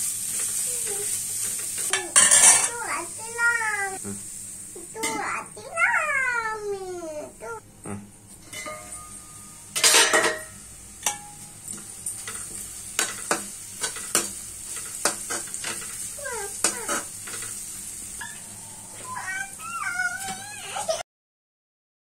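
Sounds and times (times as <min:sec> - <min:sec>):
stir-fry sizzling: 0:00.0 - 0:21.0
spatula scraping and clinking pan: 0:00.3 - 0:02.8, 0:08.4 - 0:17.6
steel lid clattering off pan: 0:01.8 - 0:02.8, 0:08.5 - 0:11.5.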